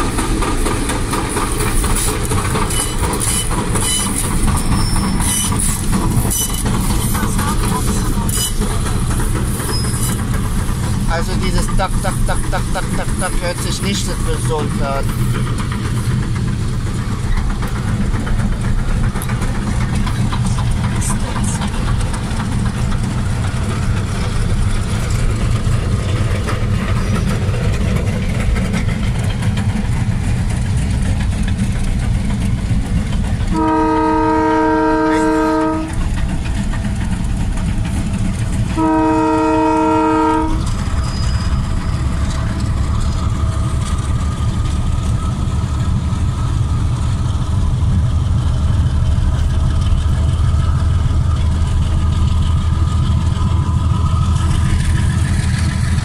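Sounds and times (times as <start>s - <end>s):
low engine rumble: 0.0s - 56.0s
locomotive horn blasts: 33.5s - 36.0s, 38.8s - 40.7s.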